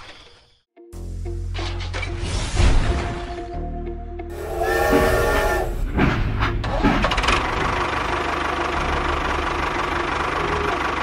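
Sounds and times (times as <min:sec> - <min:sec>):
tractor engine running: 0:04.3 - 0:11.0.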